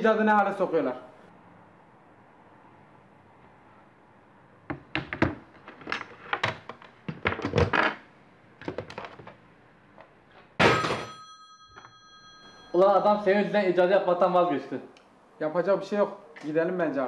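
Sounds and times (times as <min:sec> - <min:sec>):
telephone knocking and clattering: 0:04.7 - 0:07.8
telephone bell ringing: 0:10.6 - 0:13.1.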